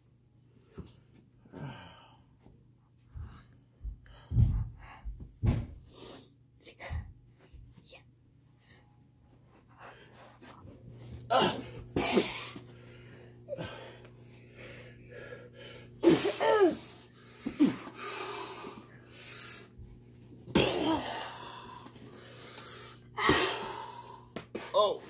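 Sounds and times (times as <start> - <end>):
breathing: 3.1 - 6.3, 12.7 - 16.0, 21.3 - 24.3.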